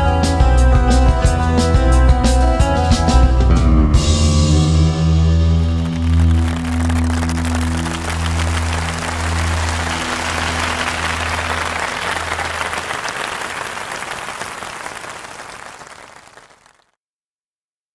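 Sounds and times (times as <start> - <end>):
audience applause: 5.6 - 17.0.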